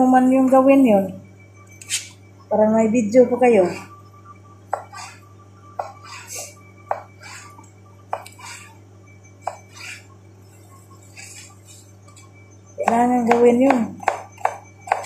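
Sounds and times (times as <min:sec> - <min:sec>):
knife cutting cucumber: 0:12.9 - 0:15.0
knife striking cutting board: 0:12.9 - 0:15.0.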